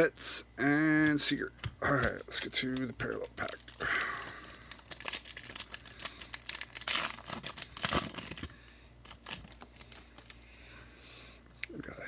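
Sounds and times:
wrapper tearing and crinkling: 1.9s - 10.4s.

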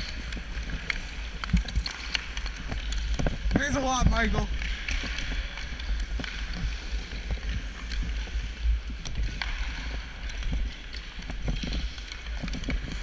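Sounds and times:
sticks and puck tapping ice: 0.0s - 13.0s.

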